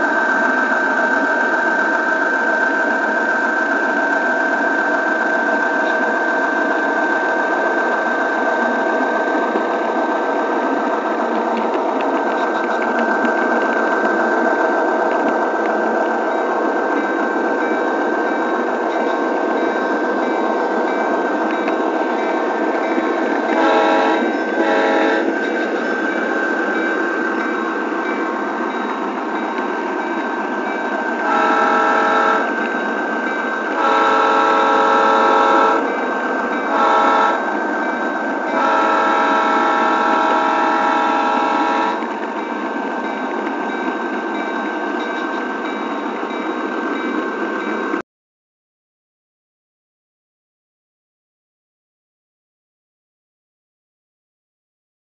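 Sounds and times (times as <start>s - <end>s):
train horn blasts: 23.4s - 25.4s, 31.2s - 32.6s, 33.6s - 36.0s, 36.6s - 37.6s, 38.5s - 42.1s.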